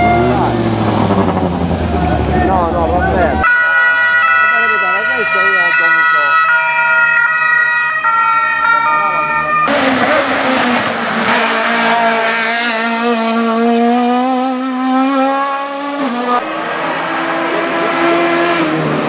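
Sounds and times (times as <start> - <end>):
race car engine at high revs: 0.0 - 3.4, 9.7 - 19.0
two-tone police siren: 3.2 - 9.8.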